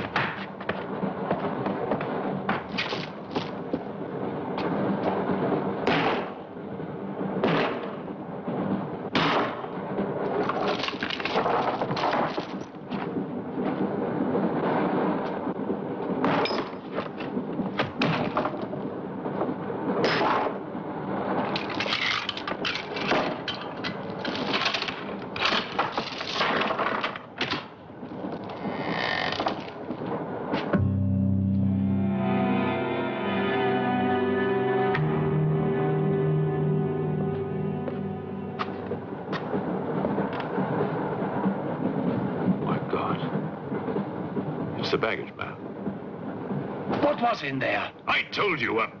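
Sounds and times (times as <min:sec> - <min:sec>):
low drone: 0:30.7 - 0:42.0.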